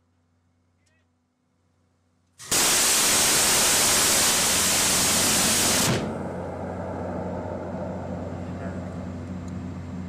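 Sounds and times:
gatling gun firing burst: 2.5 - 6.1.

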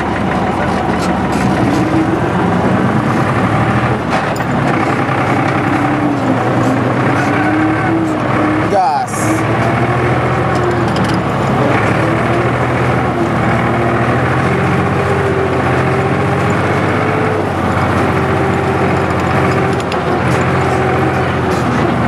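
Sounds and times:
vehicle engine running: 0.0 - 22.0.

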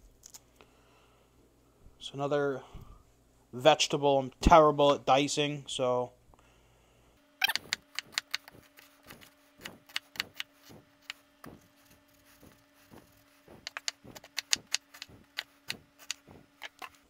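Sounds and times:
knife chopping on wooden board: 7.6 - 16.9.

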